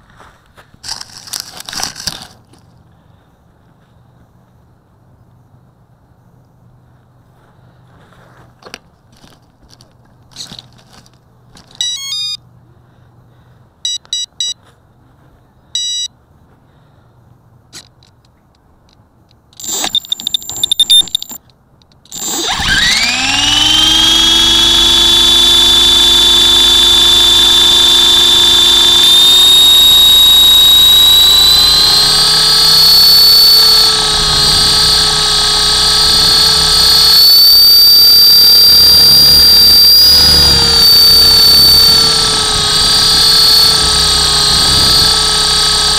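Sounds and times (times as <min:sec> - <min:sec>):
helicopter motor whine: 0:11.8 - 0:12.4, 0:19.6 - 0:21.4, 0:22.1 - 0:45.9
short electronic beeps: 0:11.8 - 0:12.4, 0:13.8 - 0:14.6, 0:15.8 - 0:16.1, 0:19.6 - 0:21.4.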